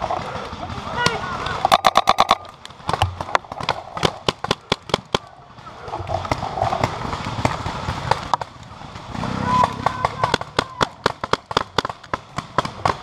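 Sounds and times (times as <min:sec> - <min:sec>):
paintball markers firing: 0:00.0 - 0:05.3, 0:09.6 - 0:13.0.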